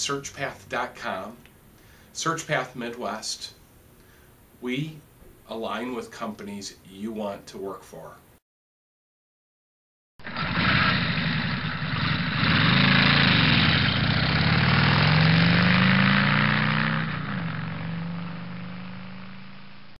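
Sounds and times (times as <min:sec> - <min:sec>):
engine revving: 0:10.2 - 0:20.0.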